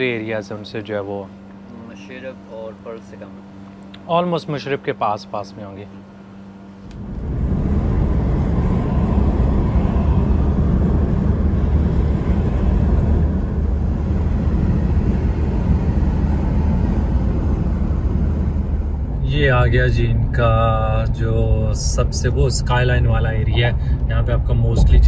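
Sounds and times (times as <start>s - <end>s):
road and wind noise rumble: 6.8s - 25.0s.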